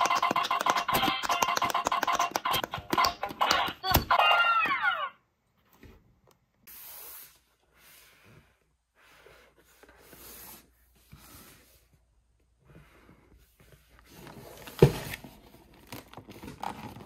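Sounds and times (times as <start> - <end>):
toy electronic sound falling: 0.0 - 5.2.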